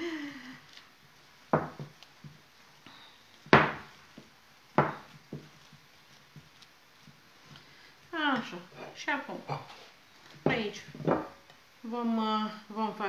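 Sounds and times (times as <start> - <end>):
sharp knocks on wooden worktop: 1.5 - 2.0, 3.5 - 3.9, 4.8 - 5.5, 10.4 - 11.4.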